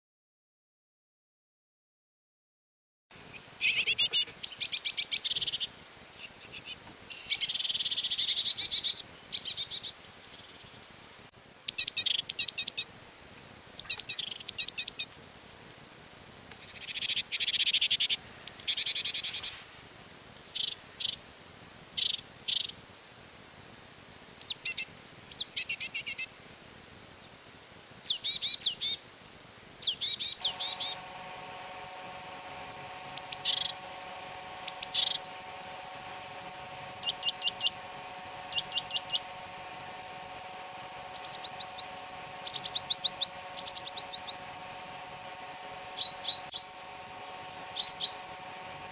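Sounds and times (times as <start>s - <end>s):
bird buzzy rasps: 3.3s - 5.7s, 29.8s - 48.9s
bird ticking calls: 13.8s - 15.8s, 29.8s - 31.0s, 32.9s - 34.0s, 34.6s - 35.8s, 36.7s - 39.4s, 41.0s - 44.5s, 47.7s - 48.2s.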